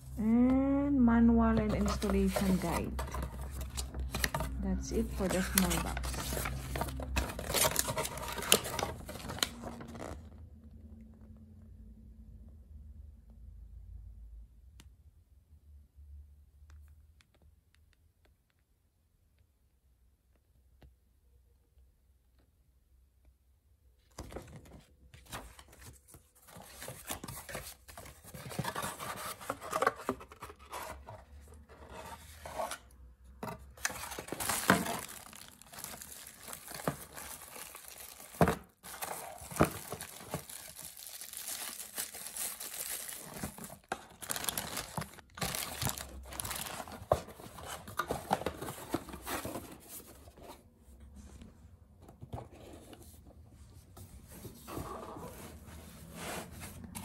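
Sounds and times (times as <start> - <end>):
plastic bag crinkling: 33.9 - 47.2.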